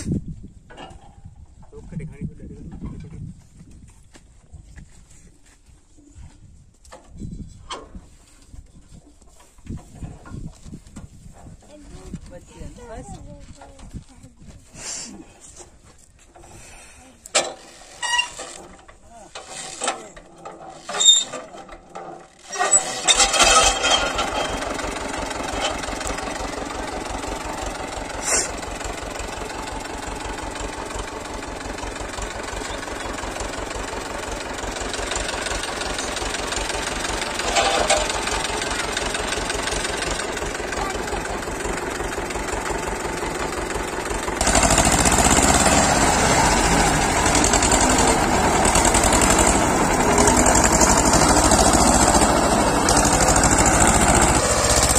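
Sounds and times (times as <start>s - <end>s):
tractor diesel engine idling: 15.4s - 54.9s.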